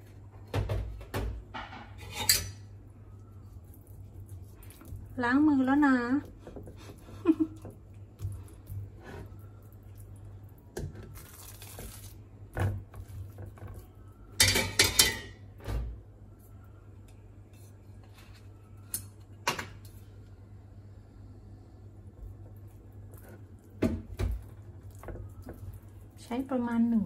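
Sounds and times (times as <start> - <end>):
kitchenware clinking: 1.5 - 2.7, 14.4 - 15.4.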